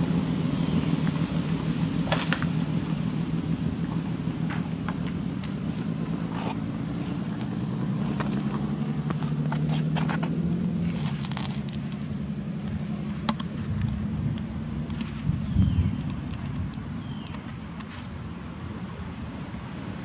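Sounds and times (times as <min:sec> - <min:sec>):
low engine hum: 0:00.0 - 0:20.0
light clicks: 0:16.0 - 0:18.1.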